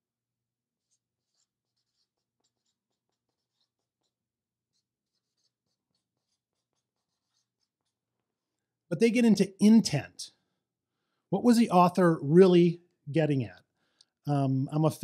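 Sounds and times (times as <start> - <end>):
marker pen writing on paper: 0.4 - 8.8.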